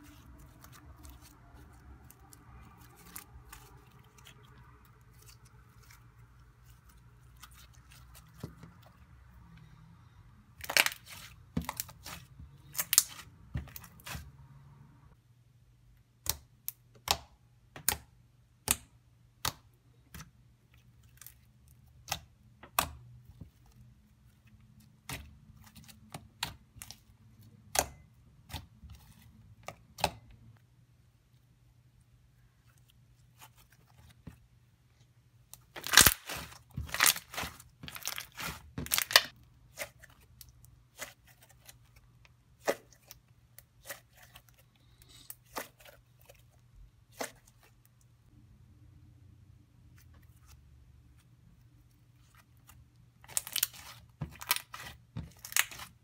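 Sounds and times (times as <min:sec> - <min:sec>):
slime squelching and popping: 0:10.6 - 0:14.3, 0:35.5 - 0:47.7, 0:52.6 - 0:56.0.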